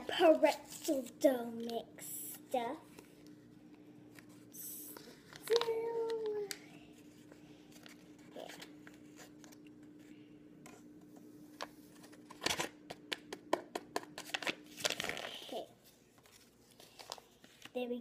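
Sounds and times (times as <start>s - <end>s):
faint steady hum: 0.0s - 18.0s
paper packet crinkling: 4.9s - 6.6s, 14.2s - 15.6s, 16.2s - 17.8s.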